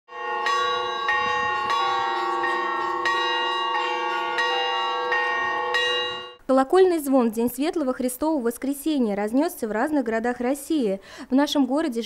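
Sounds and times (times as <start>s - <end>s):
church bells pealing: 0.1s - 6.4s.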